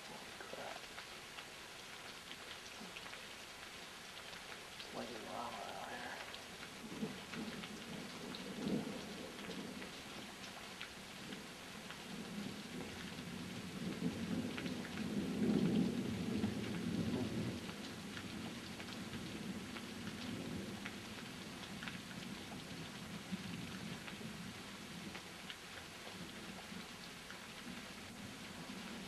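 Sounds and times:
rain hissing: 0.0 - 29.0
raindrops ticking: 0.0 - 29.0
thunder rumbling: 4.9 - 9.8.

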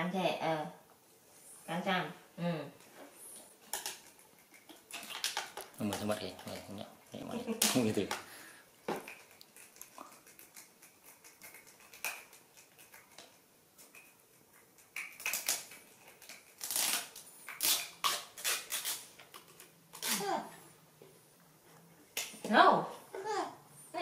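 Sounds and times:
plastic cups crinkling and clicking: 3.6 - 6.8, 7.5 - 20.3
foil lids peeling: 15.0 - 20.4.

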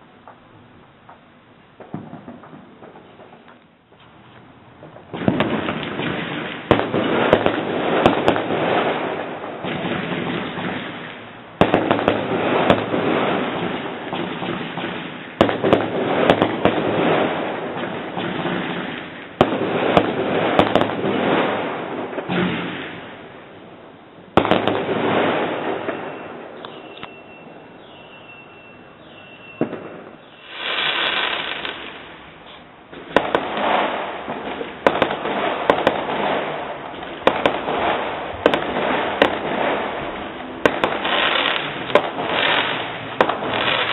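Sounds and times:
crackle of small pops: 1.8 - 5.0
firework shells bursting: 29.6 - 43.9.

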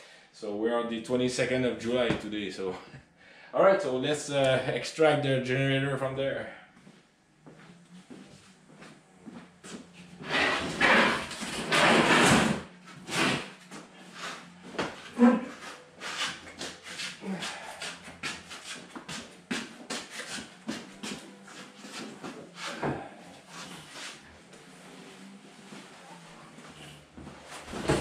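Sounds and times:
rough scraping: 10.1 - 28.0.

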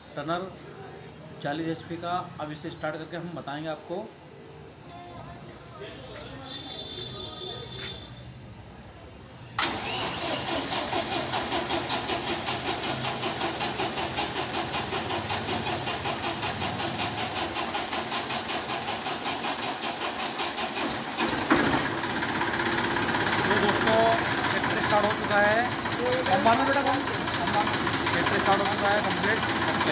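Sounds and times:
diesel tractor engine running: 9.6 - 29.9.

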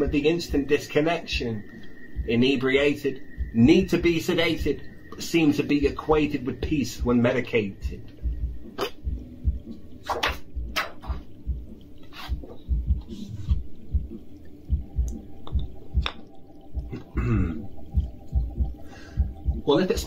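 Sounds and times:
low held tone: 0.0 - 11.8
kick drum: 2.2 - 2.4, 3.4 - 4.0, 5.8 - 20.0.

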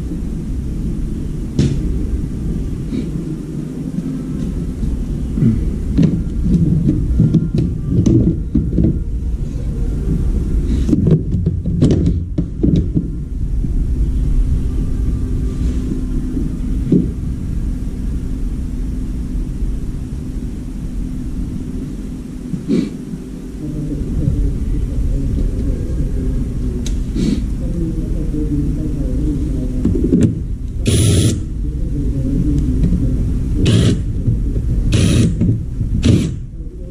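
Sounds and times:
low rumble: 0.0 - 36.9
plastic knocks and clatter: 10.9 - 13.1.

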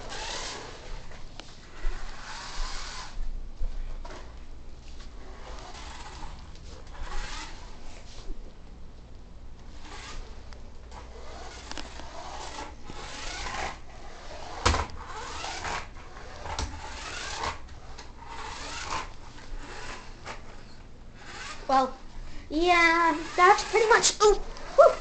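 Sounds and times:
toy car wheels swishing on wood: 0.0 - 3.2, 5.2 - 8.2, 9.7 - 22.0, 22.6 - 25.0.

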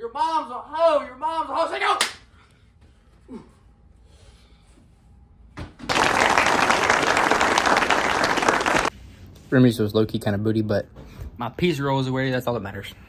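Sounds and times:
crowd applauding: 5.9 - 8.9.

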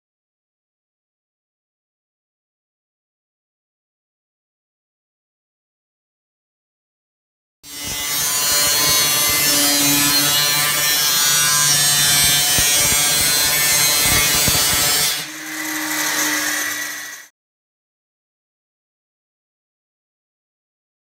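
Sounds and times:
grinder cutting metal: 7.7 - 17.3.

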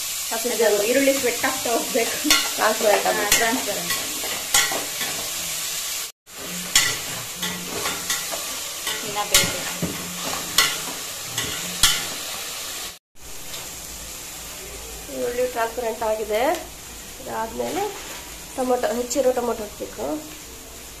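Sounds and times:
onions sizzling in oil: 0.0 - 21.0
ladle scraping and clinking pot: 6.4 - 12.3.

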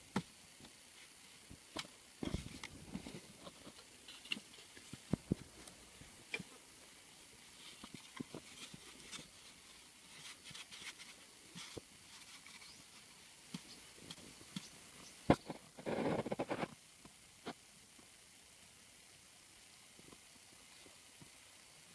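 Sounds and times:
soil scraping: 0.0 - 6.6, 7.3 - 16.7.

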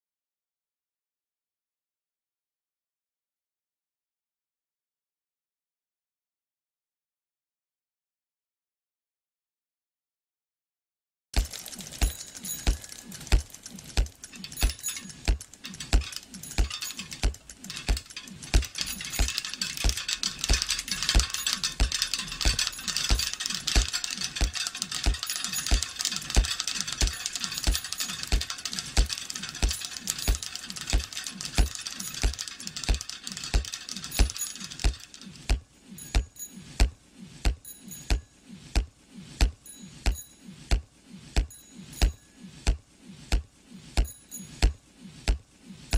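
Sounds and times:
fast high clicks: 11.4 - 36.6.

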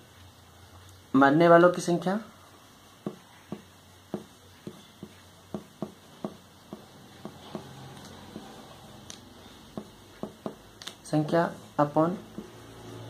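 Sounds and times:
marker pen tapping on paper: 3.0 - 11.0, 12.3 - 12.6.

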